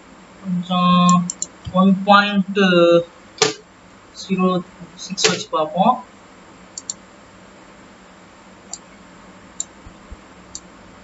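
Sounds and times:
faint hiss: 0.0 - 11.0
computer mouse clicks: 1.1 - 1.5, 6.8 - 7.0.

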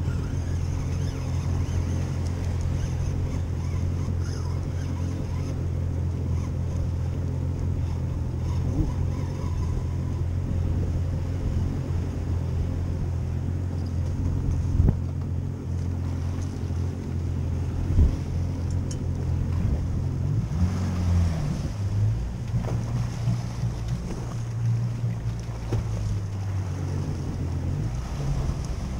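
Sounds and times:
outboard motor running: 0.0 - 28.9.

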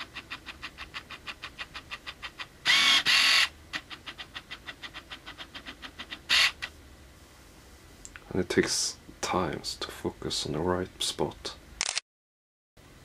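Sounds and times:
autofocus motor buzzing: 2.3 - 3.6
lens autofocus clicks: 11.8 - 12.0.

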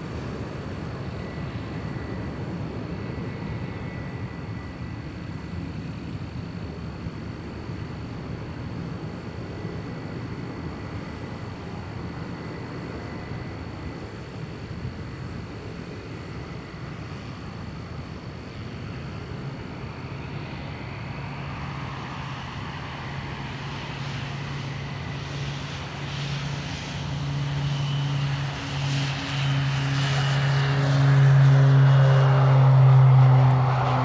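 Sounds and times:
jet passing overhead: 0.0 - 34.0.

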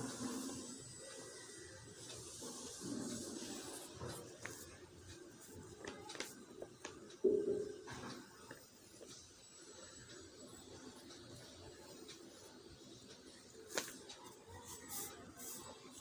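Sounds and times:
pencil scratching on paper: 2.2 - 5.6, 13.7 - 16.0.

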